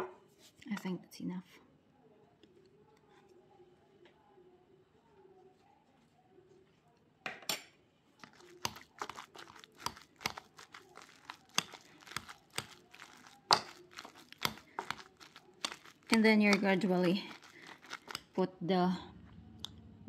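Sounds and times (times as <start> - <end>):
potato masher squishing potatoes: 8.2 - 18.6.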